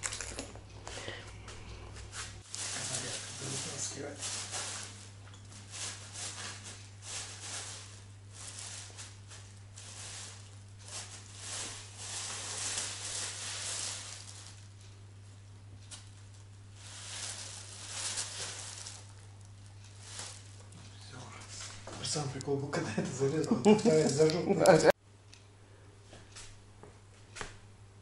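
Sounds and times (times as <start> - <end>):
steady low hum: 0.0 - 28.0
plastic bag rustling: 2.0 - 24.2.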